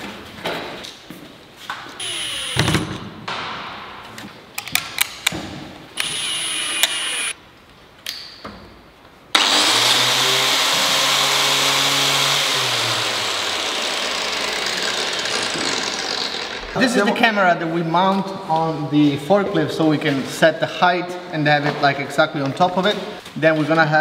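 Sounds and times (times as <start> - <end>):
cordless drill whirring: 2.0 - 3.0, 6.0 - 7.4.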